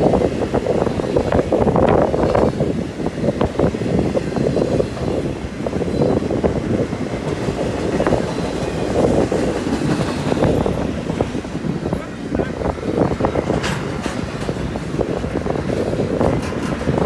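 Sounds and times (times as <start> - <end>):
steel wheels rumbling on rail: 0.0 - 17.0
clicks and clacks: 13.4 - 17.0.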